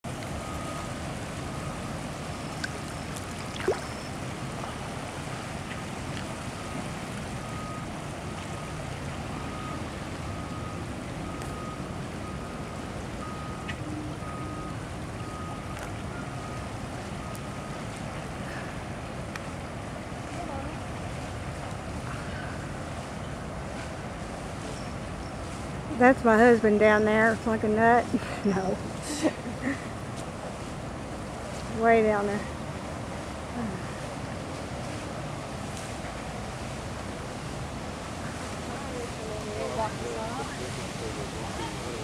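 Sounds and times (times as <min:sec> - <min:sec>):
floodwater rushing: 0:00.0 - 0:42.0
faint high beep: 0:02.3 - 0:04.2, 0:07.4 - 0:07.8, 0:13.2 - 0:15.7.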